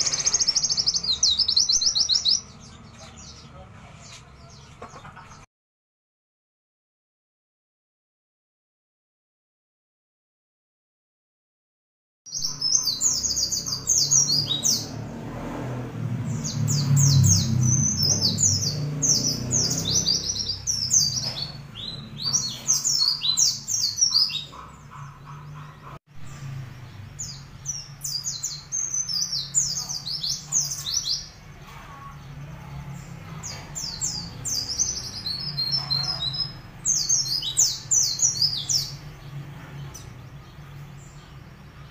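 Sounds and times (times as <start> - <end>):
bird twittering song: 0.0 - 4.8, 12.3 - 15.0, 16.2 - 41.9.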